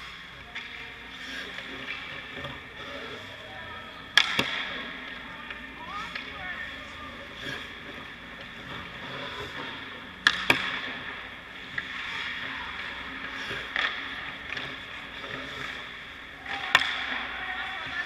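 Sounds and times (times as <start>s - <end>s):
skates scraping on ice: 0.0s - 18.0s
sharp cracks of pucks and sticks: 4.1s - 6.4s, 7.4s - 18.0s.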